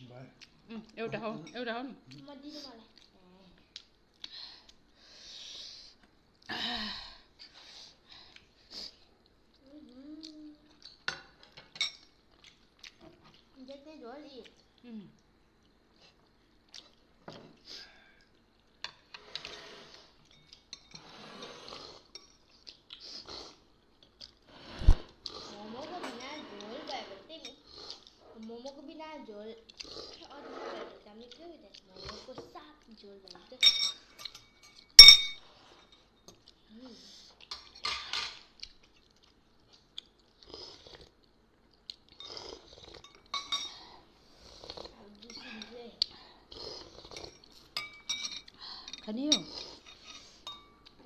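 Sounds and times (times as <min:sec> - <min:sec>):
chewing: 0:12.3 - 0:13.6, 0:14.4 - 0:19.6, 0:27.5 - 0:28.8, 0:29.6 - 0:30.3, 0:38.4 - 0:43.5, 0:44.3 - 0:48.6
slurping soup: 0:19.0 - 0:20.2, 0:20.9 - 0:22.1, 0:24.4 - 0:28.3, 0:29.8 - 0:31.0, 0:42.1 - 0:43.0, 0:43.8 - 0:45.0, 0:46.2 - 0:47.7
spoons clinking on porcelain bowls: 0:33.6 - 0:35.4, 0:43.0 - 0:43.8, 0:47.4 - 0:50.8.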